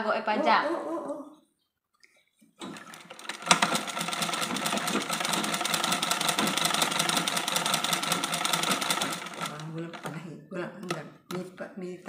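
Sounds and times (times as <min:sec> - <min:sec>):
sewing machine clattering: 0:02.6 - 0:10.2.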